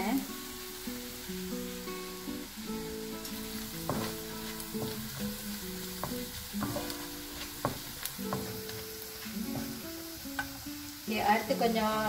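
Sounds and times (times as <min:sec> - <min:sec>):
background music with plucked notes: 0:00.0 - 0:12.0
garlic sizzling in hot oil: 0:00.0 - 0:12.0
spatula scraping and tapping pan: 0:03.2 - 0:09.8.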